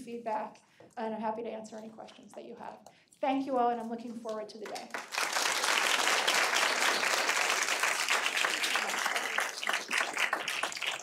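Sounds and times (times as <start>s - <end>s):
audience applauding: 4.9s - 11.0s.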